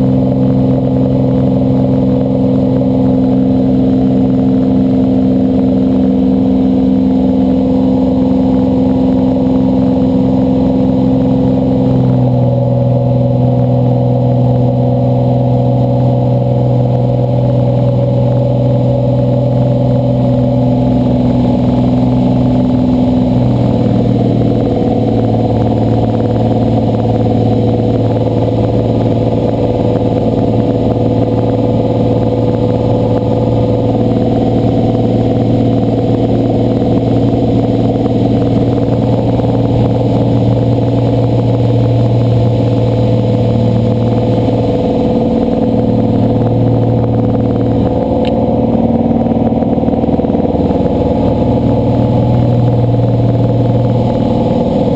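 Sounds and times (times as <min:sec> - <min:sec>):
aircraft piston engine and propeller: 0:00.0 - 0:54.9.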